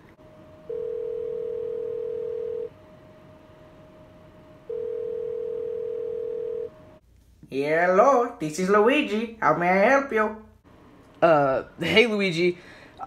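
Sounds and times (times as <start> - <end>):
telephone ringback tone: 0.7 - 2.7, 4.7 - 6.7.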